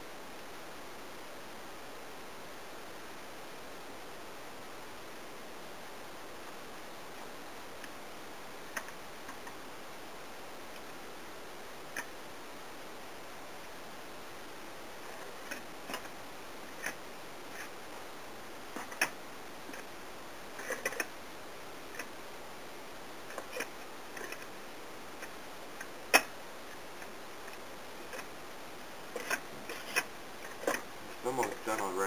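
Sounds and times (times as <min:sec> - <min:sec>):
faint hiss: 0:00.0 - 0:32.0.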